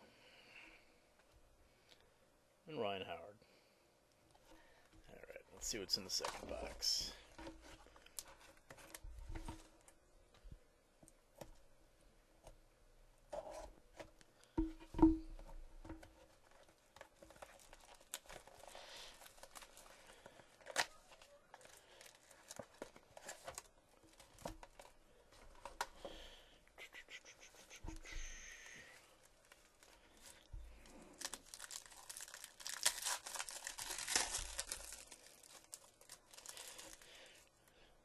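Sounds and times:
cardboard and cards handled: 5.6s - 10.0s, 13.3s - 26.2s
plastic wrapper tearing and crinkling: 16.4s - 25.0s, 28.6s - 37.2s.

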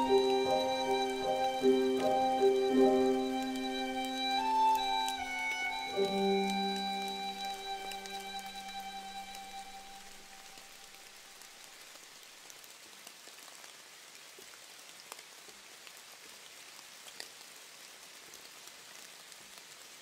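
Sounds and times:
closing music: 0.0s - 10.6s
soft patter like light rain: 0.0s - 20.0s.

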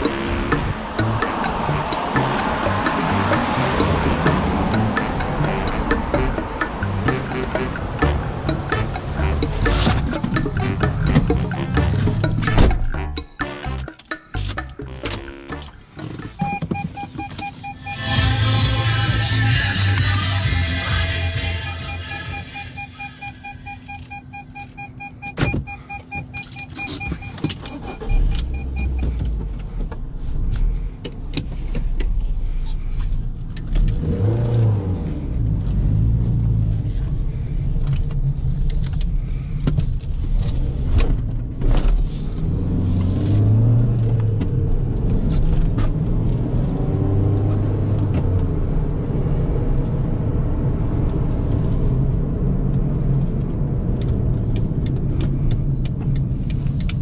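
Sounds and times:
car engine accelerating: 0.0s - 16.6s, 33.0s - 39.1s, 40.3s - 57.0s
repeating electronic beep: 0.0s - 18.4s, 21.4s - 29.0s
road noise: 0.0s - 57.0s.

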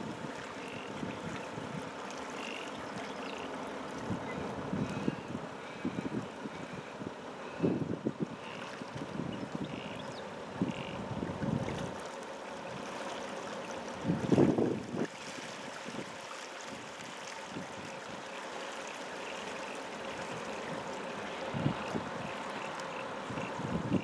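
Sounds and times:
floodwater rushing: 0.0s - 7.6s, 10.3s - 24.0s
wind buffeting microphone: 4.0s - 12.0s, 14.0s - 15.1s, 21.5s - 22.4s, 23.3s - 24.0s.

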